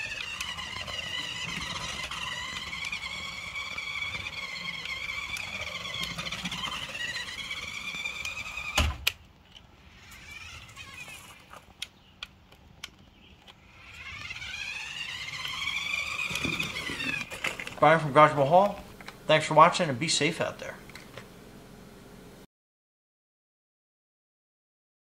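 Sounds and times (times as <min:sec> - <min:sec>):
rc car motor whining: 0:00.0 - 0:21.3.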